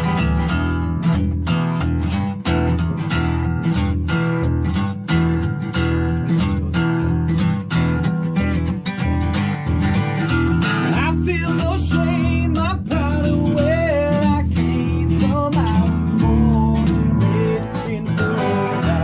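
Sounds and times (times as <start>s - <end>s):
steady bass line: 0.0s - 19.0s
strummed acoustic guitar: 0.0s - 19.0s.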